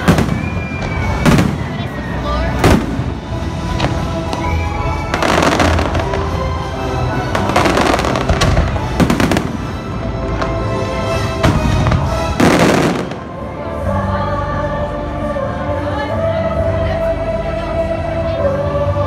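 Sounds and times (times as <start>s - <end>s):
fireworks bursting and crackling: 0.0s - 6.6s, 7.2s - 13.3s
show soundtrack music: 0.0s - 19.0s.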